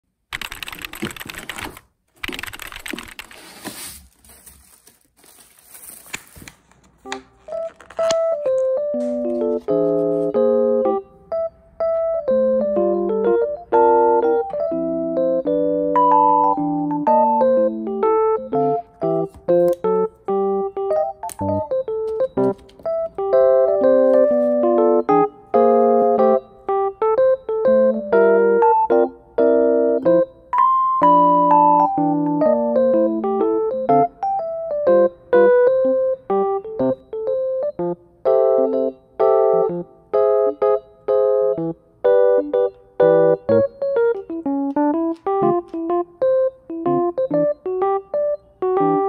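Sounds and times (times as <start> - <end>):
cardboard rustling and handling: 3.0 - 10.3
cardboard box crackling and scraping: 3.3 - 6.5
keyboard melody: 7.0 - 49.0
piano music: 7.0 - 49.0.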